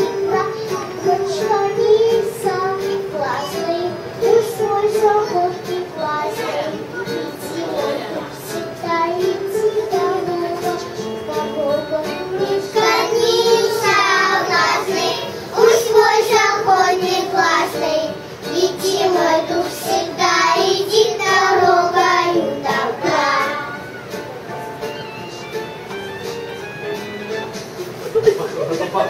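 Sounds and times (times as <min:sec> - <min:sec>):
girl singing into a microphone: 0:00.0 - 0:17.9.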